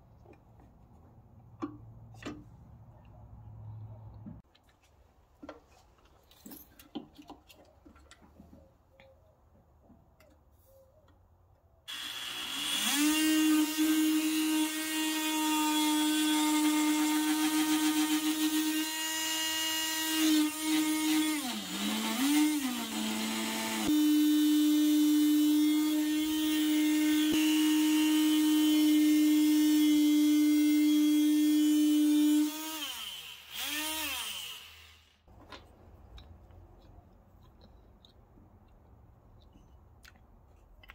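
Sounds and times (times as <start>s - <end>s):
oscillating multi-tool cutting wood: 11.9s - 35.2s.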